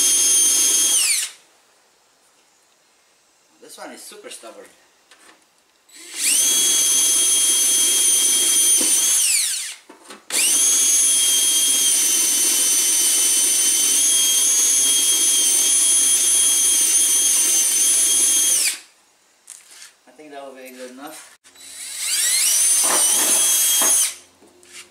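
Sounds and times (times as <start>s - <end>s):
power drill boring into metal: 0.0s - 1.4s, 5.9s - 18.9s, 21.6s - 24.2s.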